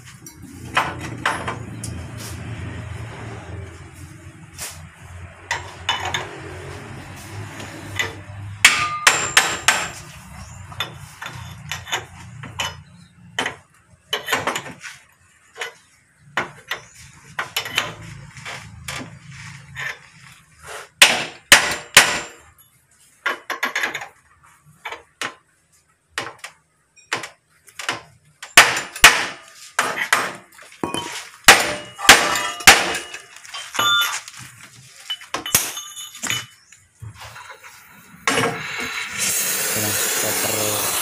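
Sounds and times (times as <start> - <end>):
hammer clanking on metal: 8.0 - 10.1, 21.0 - 22.5, 27.0 - 34.1.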